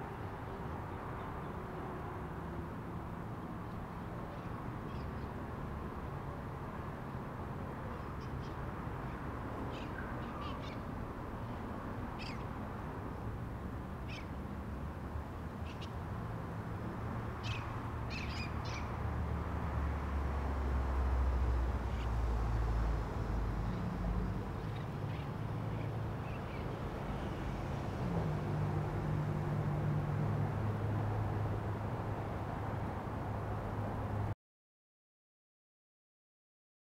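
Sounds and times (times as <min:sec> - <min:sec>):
birds chirping: 0:17.4 - 0:19.0.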